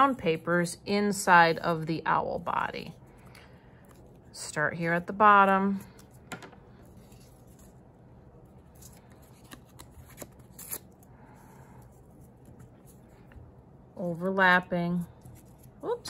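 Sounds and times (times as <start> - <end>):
paper rustling and crinkling: 8.5 - 10.9.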